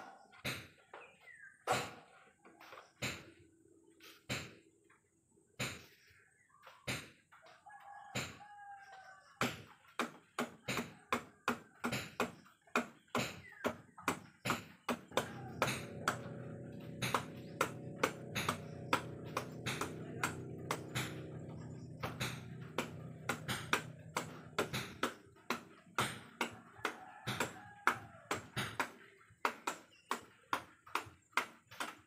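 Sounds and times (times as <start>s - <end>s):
cleaver chopping fruit: 9.4s - 32.0s
low multi-tone hum: 15.1s - 26.4s.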